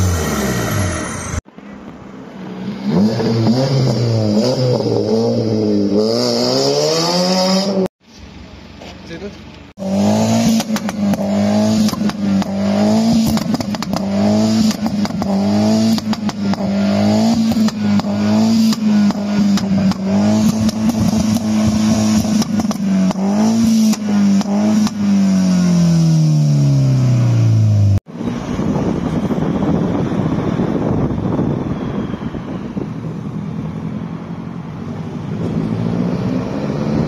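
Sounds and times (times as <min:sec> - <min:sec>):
car engine at high revs crackling: 0:00.0 - 0:02.0, 0:09.1 - 0:31.3.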